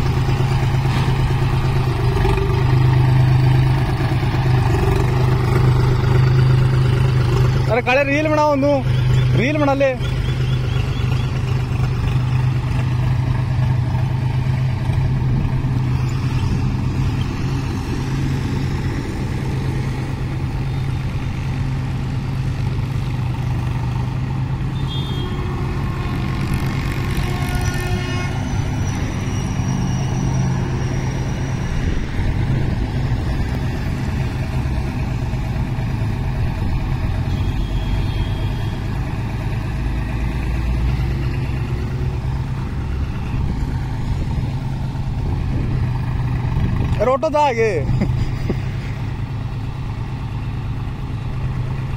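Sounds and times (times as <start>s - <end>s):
tractor diesel engine idling: 0.0s - 15.9s
vehicle horn honking: 24.7s - 25.8s, 27.1s - 28.7s, 37.3s - 38.8s.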